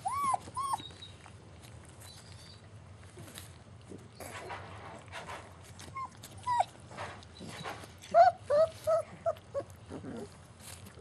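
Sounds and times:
puppies yelping: 0:00.0 - 0:01.3, 0:05.9 - 0:10.4.

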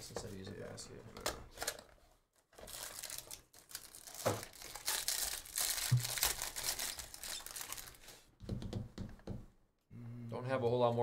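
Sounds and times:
foil wrapper tearing and crinkling: 0:02.6 - 0:08.0.

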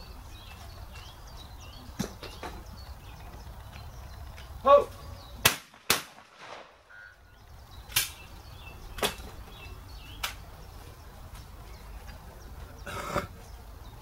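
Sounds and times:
shotgun shots: 0:05.4 - 0:07.0.

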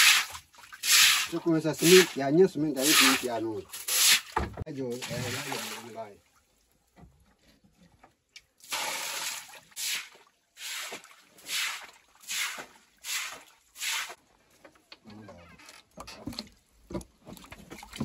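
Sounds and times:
wet swishing on concrete floor: 0:00.0 - 0:02.2, 0:02.8 - 0:04.4, 0:08.8 - 0:14.2.

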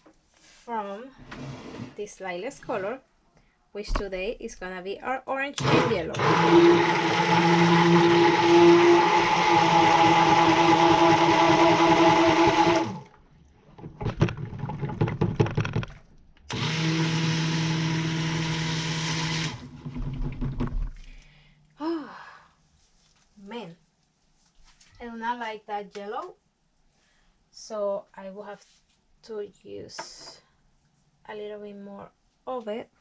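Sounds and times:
stick blender running: 0:05.6 - 0:13.2, 0:16.5 - 0:20.7.

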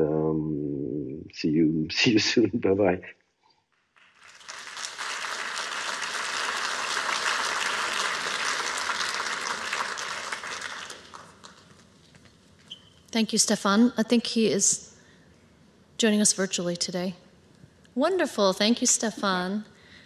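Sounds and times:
audience applauding: 0:03.8 - 0:12.1.

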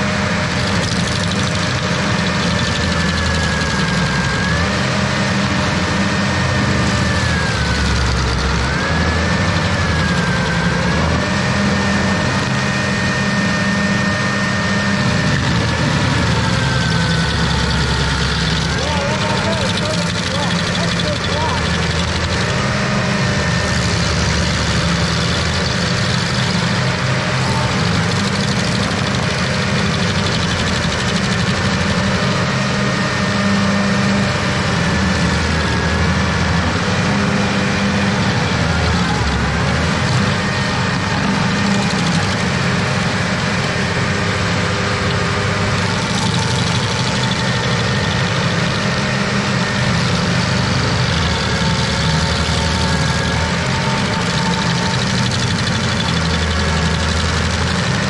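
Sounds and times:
stump grinder grinding a stump: 0:00.0 - 0:58.0.

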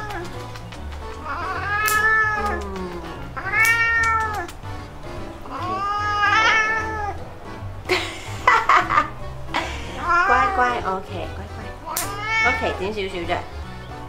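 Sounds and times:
cat meowing: 0:00.0 - 0:04.6, 0:05.5 - 0:07.2, 0:10.0 - 0:10.9, 0:11.7 - 0:13.0
background music with low beat: 0:00.0 - 0:14.0.

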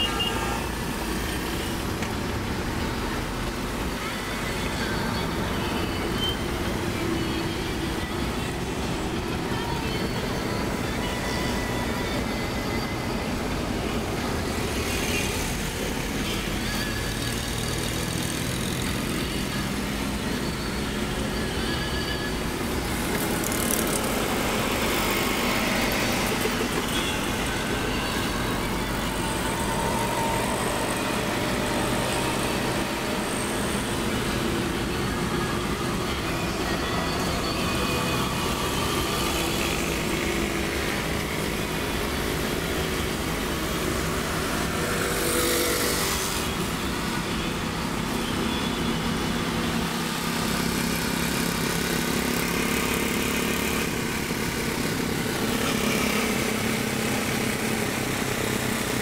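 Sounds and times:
road noise of moving car: 0:00.0 - 0:59.0
motorcycles running: 0:22.4 - 0:36.3.

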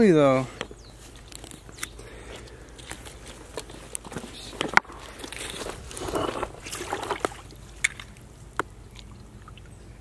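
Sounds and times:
water sloshing: 0:02.9 - 0:10.0.

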